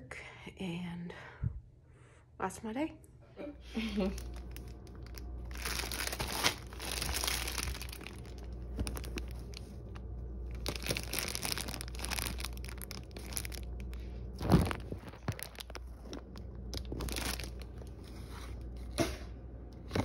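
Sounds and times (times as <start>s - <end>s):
plastic bag crinkling: 4.0s - 18.8s.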